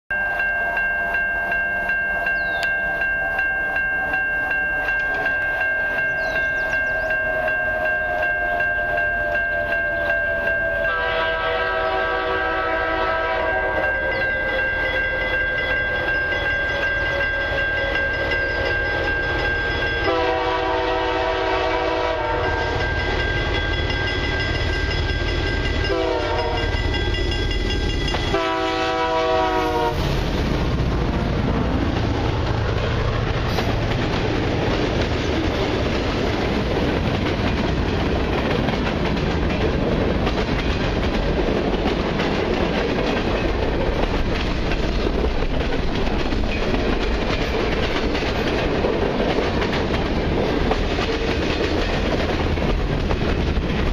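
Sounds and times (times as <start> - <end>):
steady high tone ringing: 0.1 - 11.8, 13.2 - 21.4, 22.1 - 29.5
locomotive engine rumble: 4.9 - 51.0
locomotive horn blasts: 10.7 - 14.2, 20.0 - 22.9, 25.8 - 26.8, 28.2 - 30.1.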